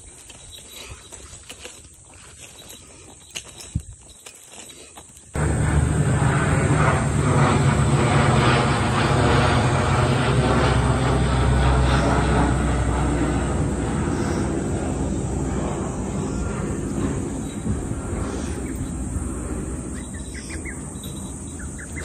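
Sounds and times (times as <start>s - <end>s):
propeller aircraft droning overhead: 5.3s - 22.0s.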